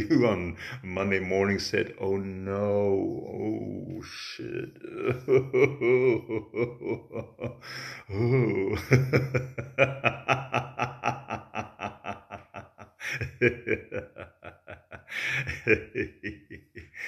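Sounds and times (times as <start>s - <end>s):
man laughing loudly: 4.4s - 17.0s.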